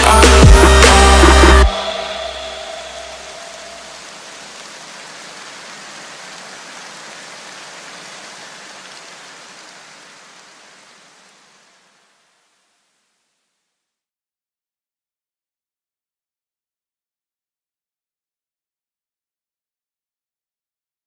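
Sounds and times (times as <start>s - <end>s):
steady hiss: 0.0s - 13.8s.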